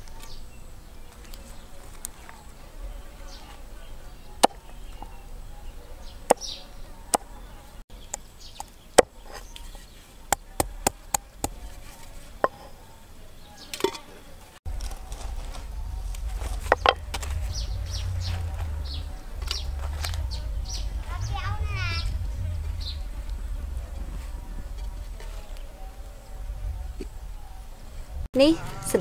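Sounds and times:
low rumble: 0:14.7 - 0:28.6.

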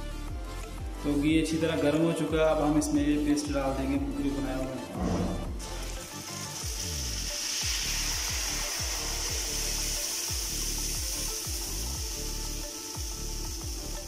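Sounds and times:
batter sizzling in a pan: 0:05.6 - 0:14.0.

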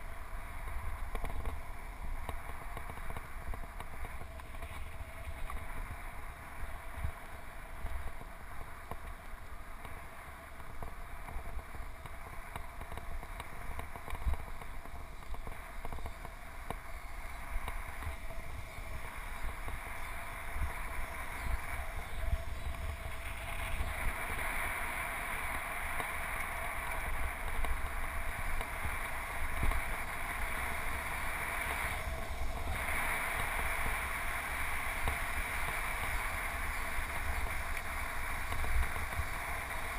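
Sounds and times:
wind buffeting microphone: 0:10.6 - 0:39.9.

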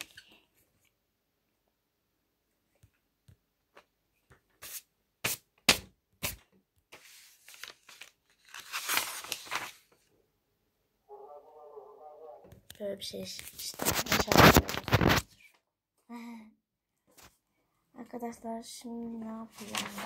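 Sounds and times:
pages rustling: 0:06.2 - 0:10.1, 0:13.3 - 0:15.6, 0:19.4 - 0:20.0.

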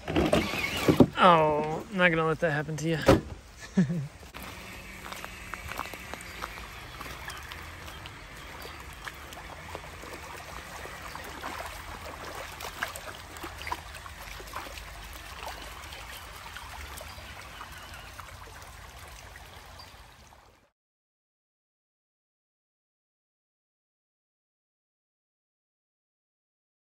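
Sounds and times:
creek water trickling over stones: 0:00.1 - 0:20.7.

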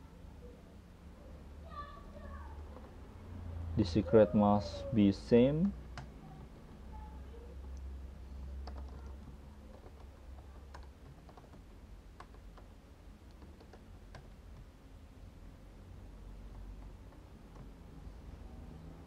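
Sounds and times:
steady low hum: 0:00.0 - 0:19.0
keyboard keystroke clicks: 0:08.4 - 0:14.7.

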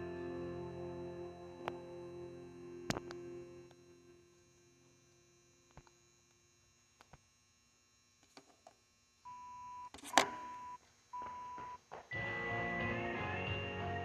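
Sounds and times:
music with guitar: 0:00.0 - 0:04.0, 0:12.1 - 0:14.0.

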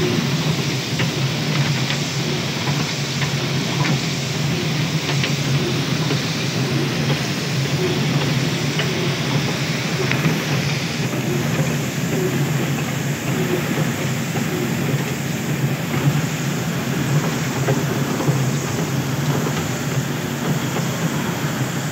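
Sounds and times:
conveyor machine hum: 0:00.0 - 0:21.9
noisy rush: 0:00.0 - 0:21.9.

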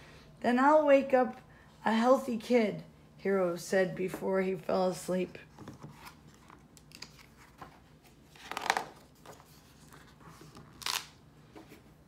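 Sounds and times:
book page turning: 0:05.6 - 0:11.9.

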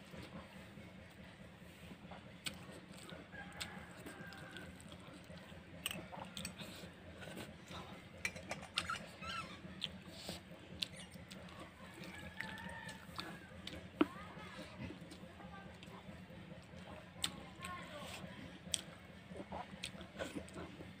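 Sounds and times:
wet chewing and mouth smacks: 0:09.8 - 0:14.2.

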